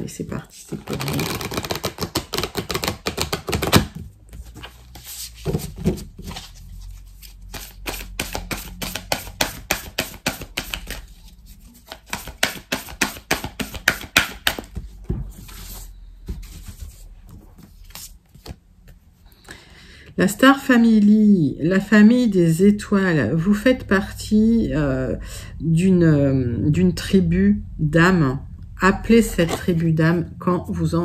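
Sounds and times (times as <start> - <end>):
cards being shuffled: 0.6 - 19.0.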